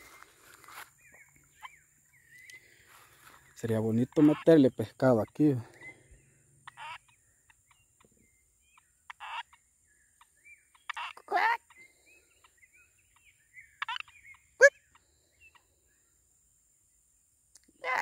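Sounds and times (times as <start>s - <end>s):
frogs calling: 0.0s - 16.3s, 17.6s - 18.0s.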